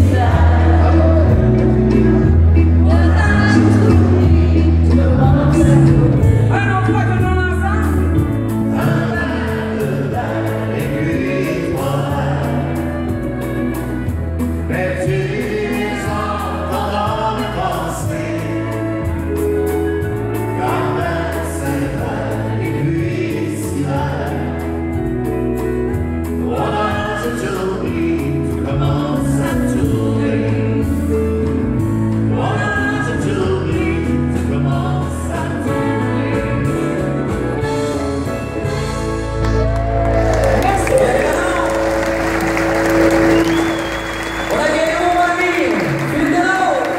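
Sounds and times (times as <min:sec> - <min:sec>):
woman and man singing: 0:00.0 - 0:13.5, 0:14.6 - 0:19.2, 0:20.4 - 0:24.8, 0:26.4 - 0:37.4
bass line: 0:00.0 - 0:46.9
keyboard: 0:00.0 - 0:46.9.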